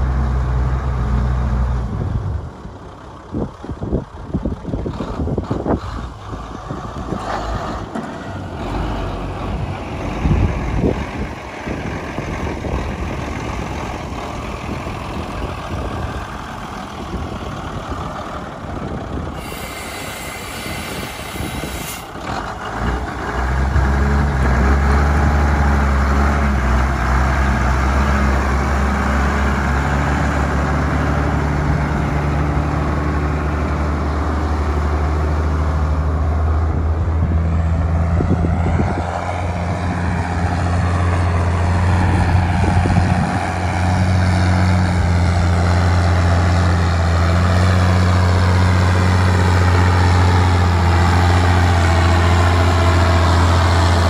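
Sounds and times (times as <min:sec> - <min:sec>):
diesel truck engine idling: 0:01.8 - 0:07.2, 0:07.8 - 0:23.9.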